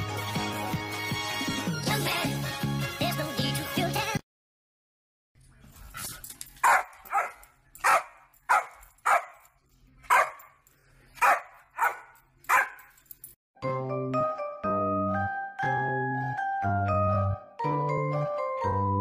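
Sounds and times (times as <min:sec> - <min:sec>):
dog barking: 0:06.6 - 0:09.4, 0:10.1 - 0:10.6, 0:11.2 - 0:12.9.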